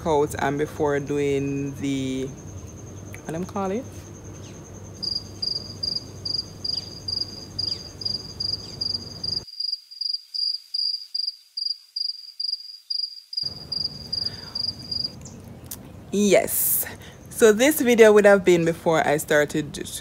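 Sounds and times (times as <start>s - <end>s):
cricket chirping: 0.9s - 15.4s.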